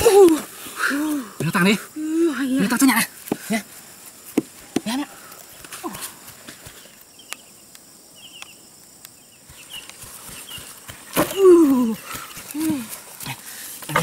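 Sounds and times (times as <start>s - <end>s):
faint high chirping: 7.1s - 12.8s.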